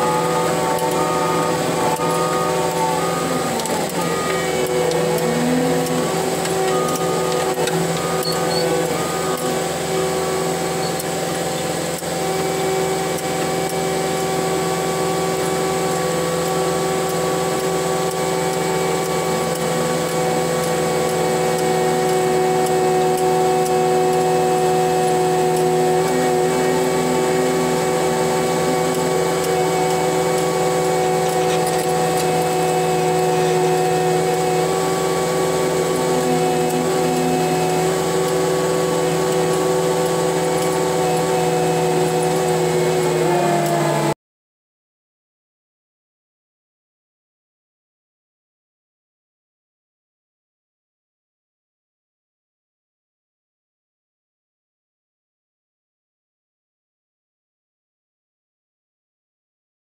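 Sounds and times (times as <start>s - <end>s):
diesel engine running: 0.0s - 44.2s
steady whine: 0.0s - 44.2s.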